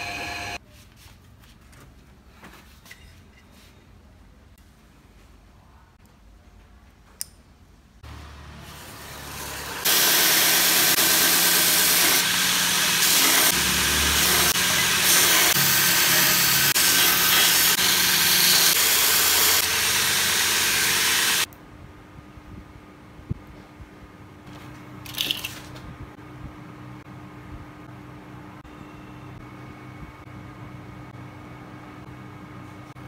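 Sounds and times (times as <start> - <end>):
belt grinder humming: 9.1 - 21.5.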